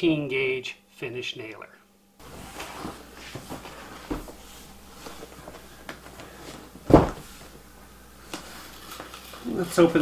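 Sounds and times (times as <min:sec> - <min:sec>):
box thumping on table: 0:06.8 - 0:07.3.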